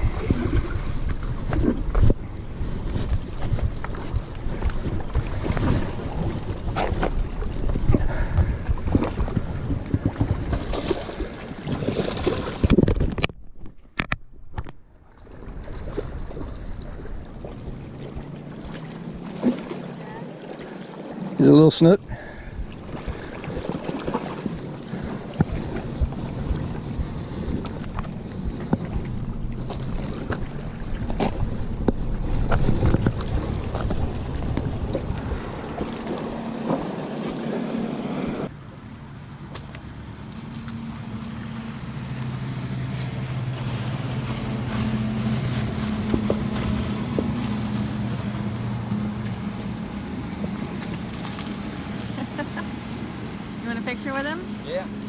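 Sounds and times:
water on rocks: 0.0 - 55.0
wind: 0.0 - 55.0
low engine-like drone: 24.3 - 55.0.

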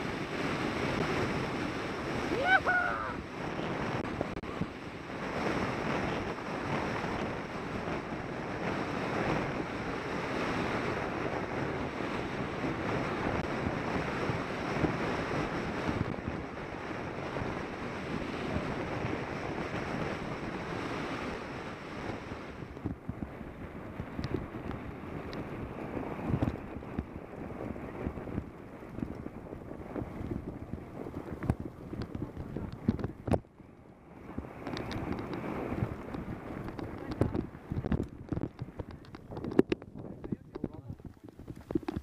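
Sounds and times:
wind rushing on microphone: 0.0 - 42.0.

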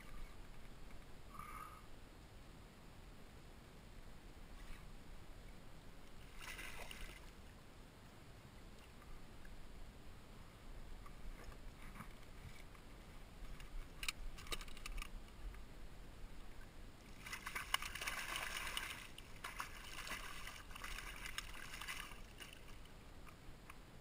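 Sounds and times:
water splashing: 6.2 - 7.4, 17.0 - 22.9
water dripping: 17.2 - 23.4.

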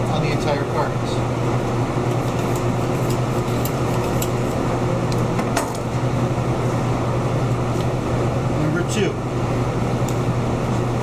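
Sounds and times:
room ventilation hum: 0.0 - 11.0
knife scraping into meat: 2.1 - 4.5.

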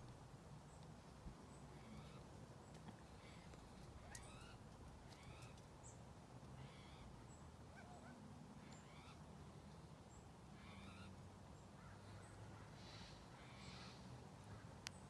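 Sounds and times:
faint chicken calls: 6.6 - 9.2.

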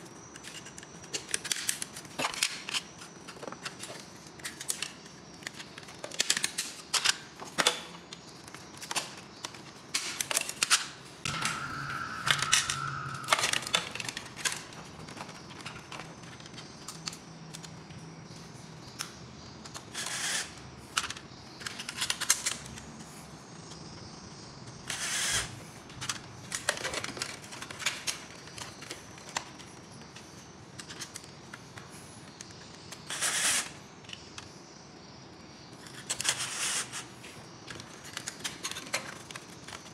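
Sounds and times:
plastic parts and tools clicking: 0.3 - 17.9, 19.0 - 22.8, 26.0 - 34.5.

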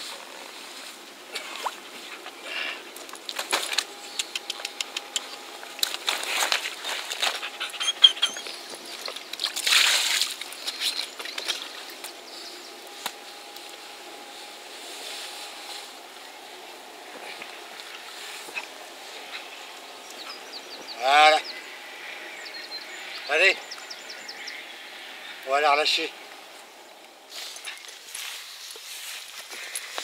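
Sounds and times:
water lapping: 1.2 - 12.9, 17.0 - 27.3
water splashing and trickling: 1.3 - 2.2, 5.8 - 12.1.

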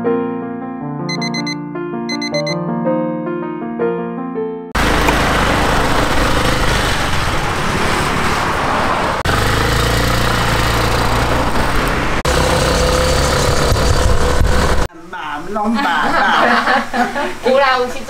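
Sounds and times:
cars passing: 4.8 - 14.9
motor scooter running: 4.8 - 14.9.

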